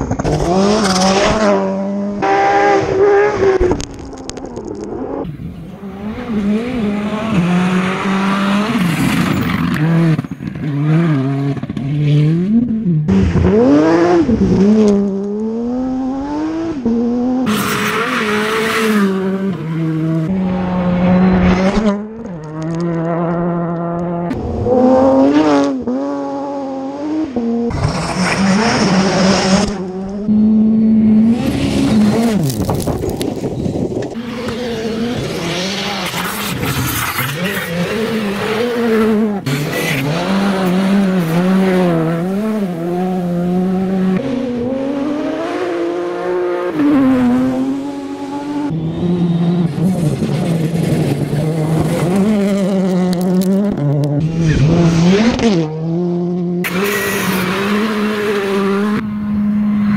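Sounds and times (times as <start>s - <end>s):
rally car engines revving: 0.0s - 59.9s.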